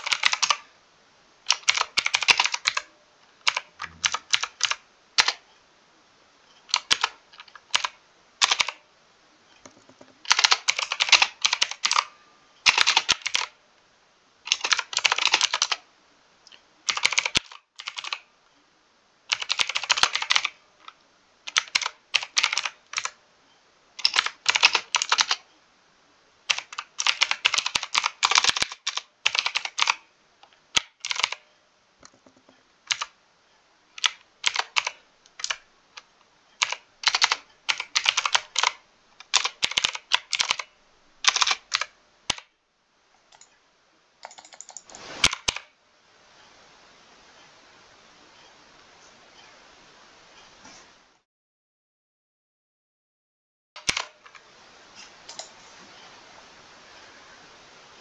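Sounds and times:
mechanical keyboard typing: 0:00.0 - 0:00.7, 0:01.5 - 0:05.4, 0:06.7 - 0:08.8, 0:09.6 - 0:13.6, 0:14.5 - 0:15.8, 0:16.9 - 0:18.3, 0:19.3 - 0:23.2, 0:24.0 - 0:25.5, 0:26.5 - 0:30.0, 0:30.7 - 0:33.2, 0:34.0 - 0:42.5, 0:43.3 - 0:43.5, 0:44.2 - 0:45.7, 0:53.8 - 0:54.4.

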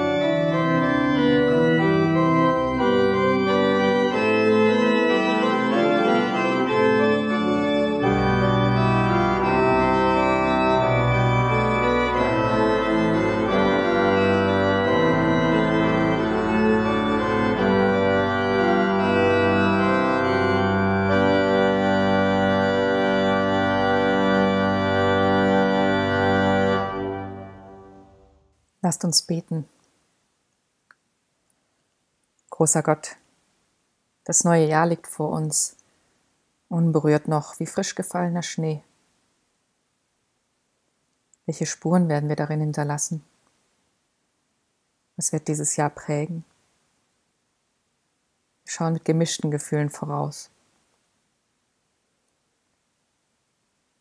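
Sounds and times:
pipe organ chords: 0:00.0 - 0:28.5.

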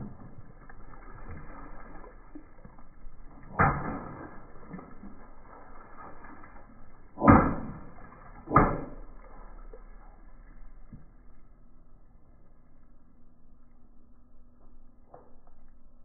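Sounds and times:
car tyre crushing water balloons: 0:03.3 - 0:10.2.

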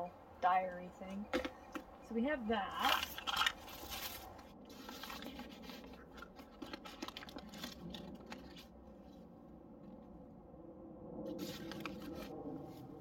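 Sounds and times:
plastic bags crinkling: 0:02.8 - 0:08.8.

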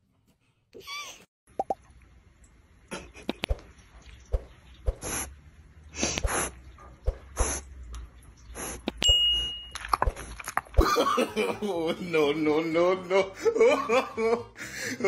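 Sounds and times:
short high ding: 0:09.0 - 0:09.8.

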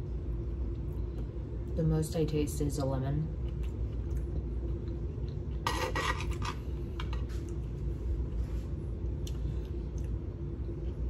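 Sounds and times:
steady low hum: 0:00.0 - 0:11.0
cutlery scraping and clinking on dish: 0:05.7 - 0:06.6.

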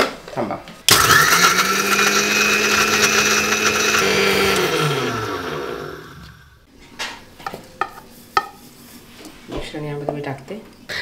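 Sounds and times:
mixer grinder grinding biscuits: 0:00.9 - 0:06.6
motor winding down: 0:00.9 - 0:06.6.

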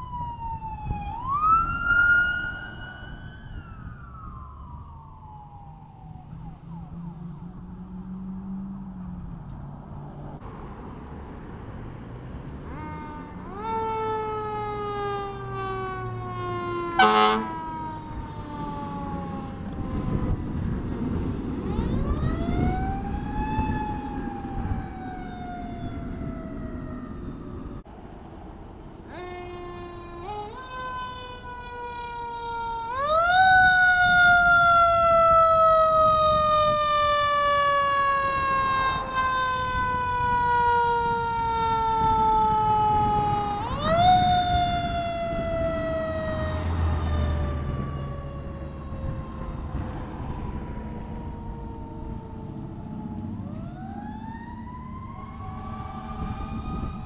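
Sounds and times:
emergency sirens wailing: 0:00.0 - 0:10.4, 0:11.0 - 0:57.0
fire engine rumbling: 0:00.0 - 0:57.0
loud horn blast: 0:17.0 - 0:17.7.

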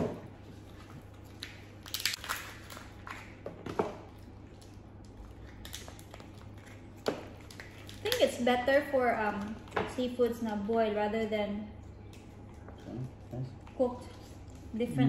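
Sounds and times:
shellfish shells cracking: 0:01.3 - 0:03.4, 0:04.2 - 0:08.3.

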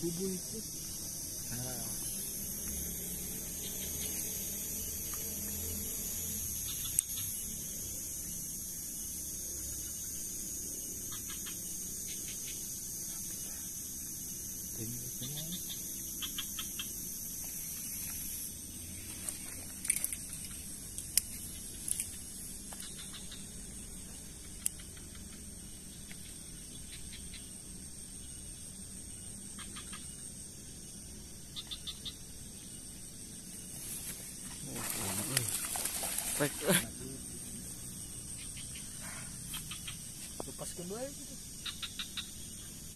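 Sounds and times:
high-pitched buzz: 0:00.0 - 0:08.4.

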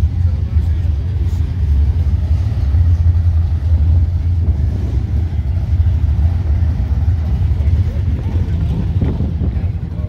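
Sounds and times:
wind buffeting microphone: 0:08.0 - 0:10.0.

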